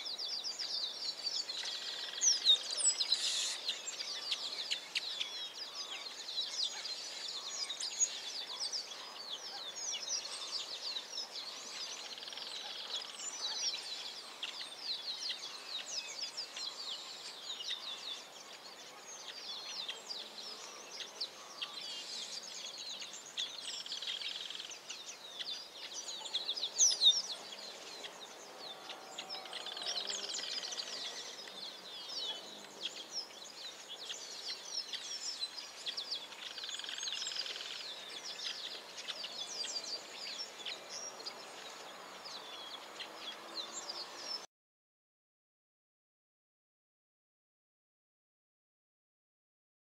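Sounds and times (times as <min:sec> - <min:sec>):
small birds chirping chorus: 0:00.0 - 0:44.5.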